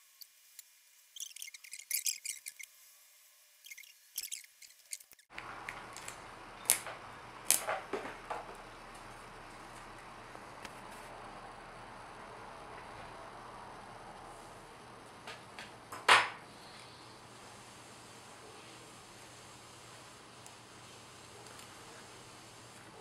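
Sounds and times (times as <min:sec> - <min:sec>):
steady background hiss: 0:00.0 - 0:23.0
crackling and clicking handling noise: 0:03.6 - 0:11.3, 0:19.9 - 0:23.0.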